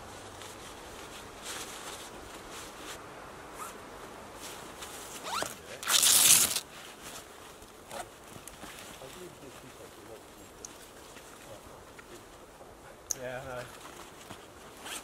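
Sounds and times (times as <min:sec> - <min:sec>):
fabric rustling: 0:00.0 - 0:09.9, 0:13.5 - 0:15.0
zip pulled: 0:05.2 - 0:06.6.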